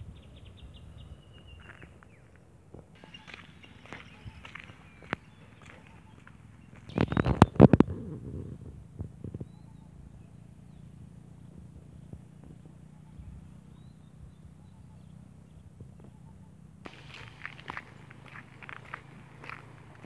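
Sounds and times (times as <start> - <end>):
faint bird chirps: 0.0 - 2.4, 3.0 - 8.0, 9.2 - 17.9
low outdoor rumble: 0.0 - 20.0.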